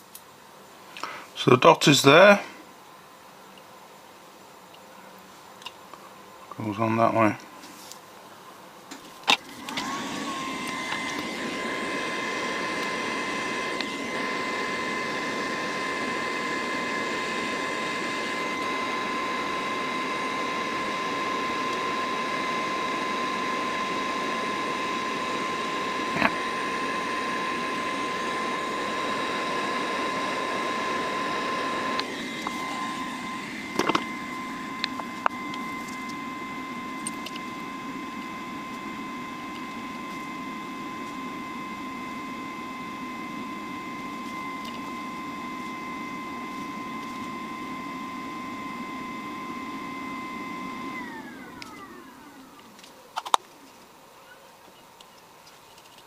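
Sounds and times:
high fan whine: 5.4 - 56.0.

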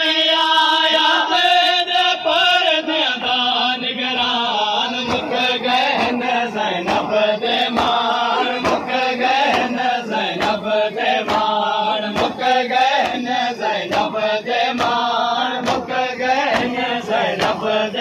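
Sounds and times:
men chanting in unison: 0.0 - 18.0
hand slaps on chests: 5.0 - 17.8.

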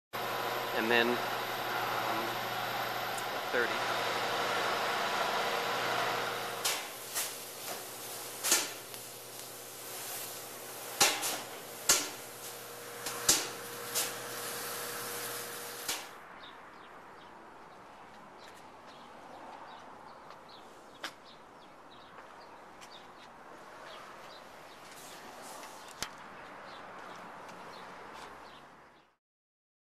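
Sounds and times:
machine hum: 0.2 - 16.1
spray gun hissing: 0.2 - 16.2
sharp pops: 6.6 - 12.3, 15.8 - 16.1.

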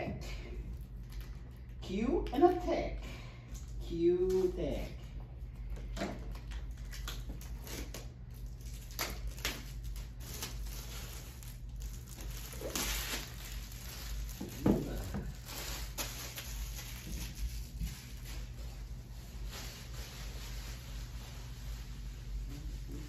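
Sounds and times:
steady low hum: 0.0 - 23.0
plastic wrap rustling and crinkling: 0.6 - 1.8, 3.5 - 23.0.

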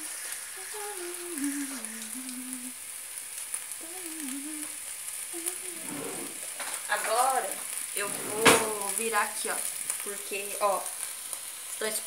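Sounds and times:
chicken sizzling in frying pan: 0.0 - 12.0.

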